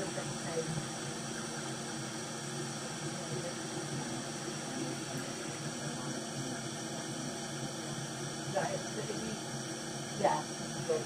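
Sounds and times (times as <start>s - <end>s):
faint hum: 0.0s - 11.0s.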